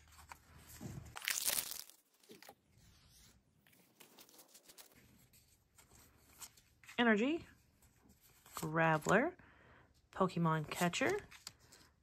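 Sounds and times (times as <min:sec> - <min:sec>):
foil wrapper tearing: 0:01.2 - 0:02.1.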